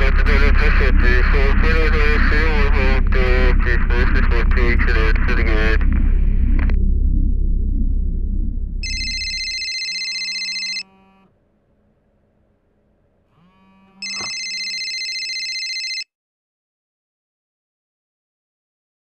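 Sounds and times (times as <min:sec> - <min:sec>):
car engine rumble: 0:00.0 - 0:09.3
smartphone ringtone: 0:08.8 - 0:10.9, 0:14.0 - 0:16.1.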